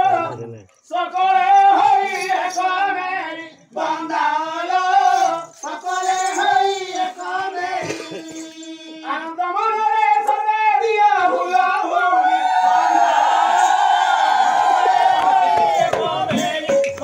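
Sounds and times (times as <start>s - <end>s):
person singing long wavering phrases: 0.0s - 12.4s.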